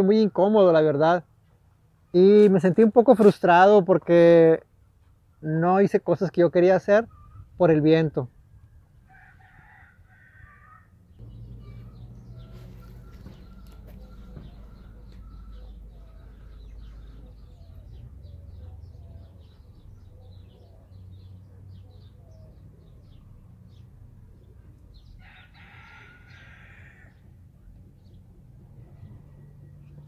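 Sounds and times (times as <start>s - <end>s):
small birds chirping: 6.9s - 7.6s, 11.1s - 30.0s
rooster crowing: 9.0s - 17.6s, 25.2s - 27.3s
low steady rumble: 11.0s - 20.2s.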